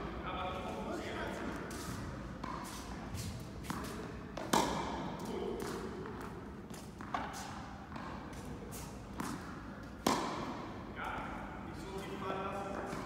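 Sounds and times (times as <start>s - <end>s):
tennis ball hits and bounces: 3.6s - 8.3s, 9.1s - 10.7s.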